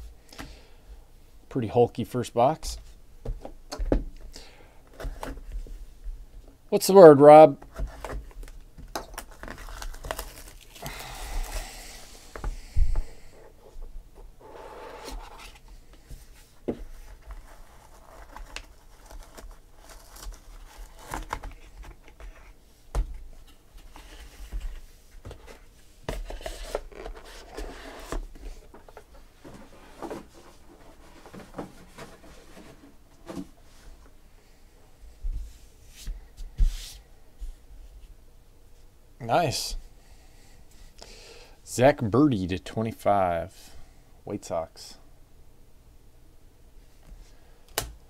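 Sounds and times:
shrink wrap crinkling and tearing: 8.4 - 11.7, 17.8 - 21.7.

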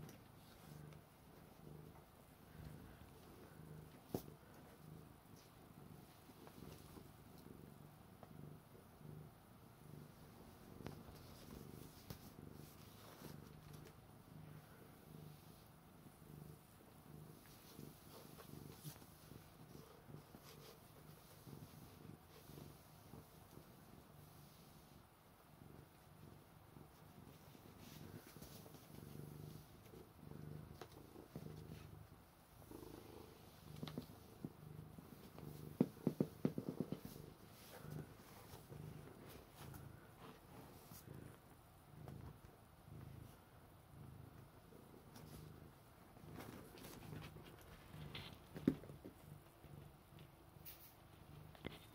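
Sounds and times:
cat purring: 0.0 - 51.9.

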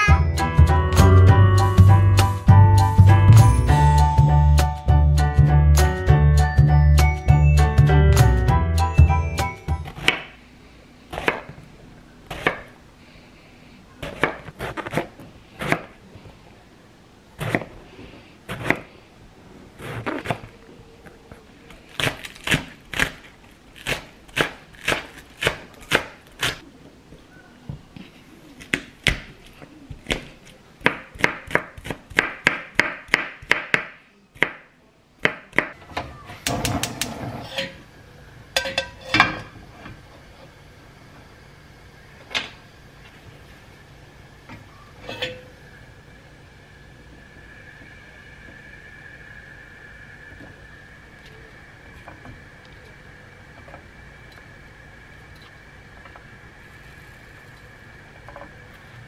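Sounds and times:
knife chopping on wooden board: 11.1 - 11.6, 12.3 - 12.7, 14.0 - 15.9, 17.4 - 17.7.

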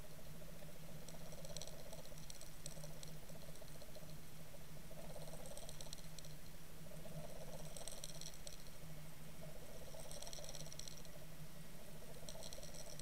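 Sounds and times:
faint fast ticking: 0.0 - 4.2, 4.9 - 8.8, 9.4 - 13.0
steady low hum: 0.0 - 13.0.

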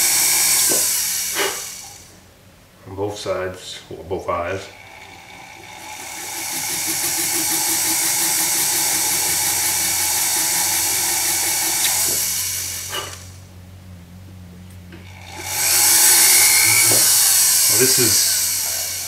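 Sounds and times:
rotary handpiece whining: 0.0 - 2.2, 4.7 - 13.5, 14.9 - 19.0.

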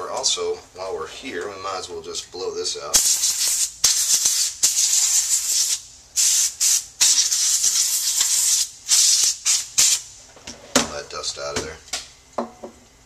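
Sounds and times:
compressed air spraying: 2.9 - 10.2.

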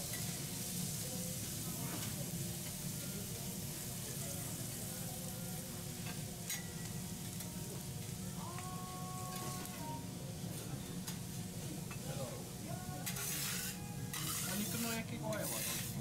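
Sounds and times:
food sizzling in hot oil: 0.0 - 8.5, 13.0 - 16.0.

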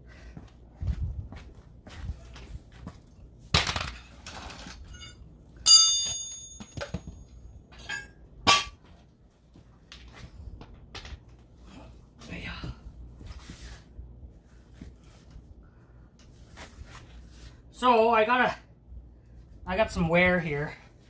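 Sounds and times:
metal clang ringing: 5.0 - 8.8
metal tools knocking on concrete: 10.9 - 11.3.

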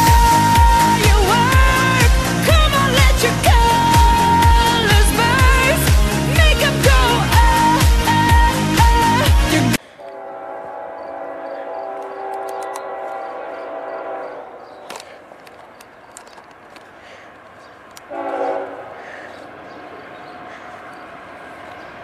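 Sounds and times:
locomotive air horn: 8.4 - 14.9, 18.1 - 19.3
moving train noise: 9.8 - 22.0.

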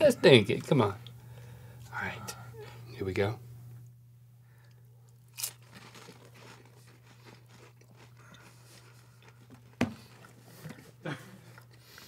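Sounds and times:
steady low hum: 0.0 - 12.0
mouth chewing sounds: 5.4 - 9.5.

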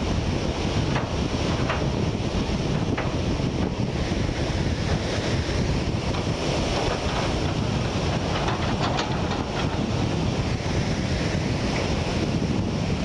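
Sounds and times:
waves breaking: 0.0 - 13.0
wind buffeting microphone: 0.0 - 13.0.

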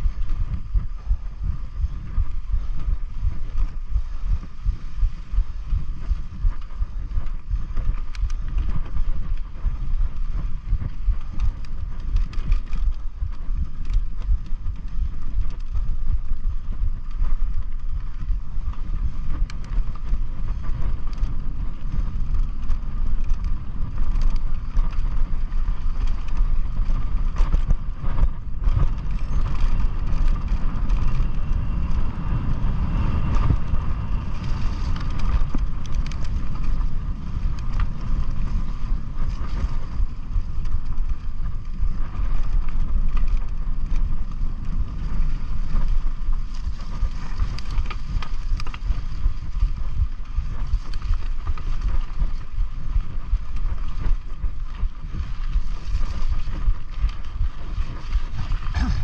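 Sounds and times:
bike rolling on dirt trail: 0.0 - 59.0
wind buffeting microphone: 0.0 - 59.0
light ticks: 6.0 - 32.0, 34.3 - 58.9
steady high hum: 23.6 - 42.2, 57.4 - 59.0.

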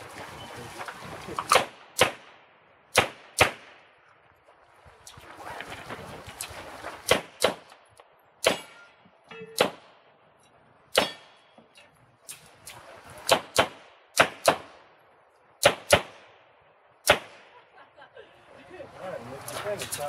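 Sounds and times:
pistol shots: 1.5 - 3.8, 13.3 - 14.8, 17.0 - 17.5.

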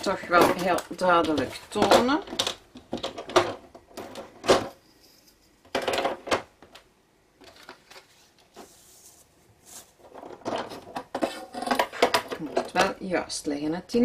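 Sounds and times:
paper and plastic rustles and knocks: 7.4 - 12.8.

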